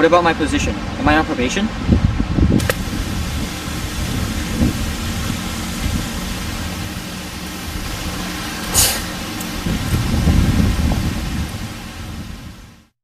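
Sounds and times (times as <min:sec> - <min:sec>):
low outdoor rumble: 0:00.1 - 0:12.9
brief hiss: 0:08.5 - 0:09.6.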